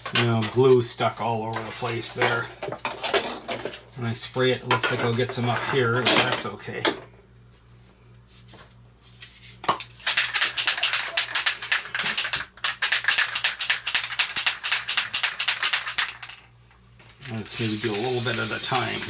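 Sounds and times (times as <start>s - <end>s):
aerosol can rattling: 10.0s - 16.5s, 17.2s - 19.0s.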